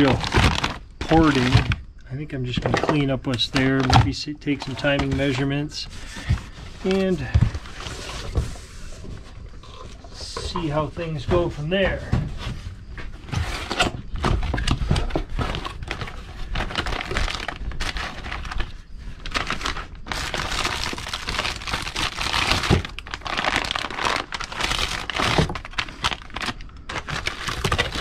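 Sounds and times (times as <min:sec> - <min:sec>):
plastic bags crinkling: 0:00.0 - 0:01.8, 0:15.4 - 0:28.0.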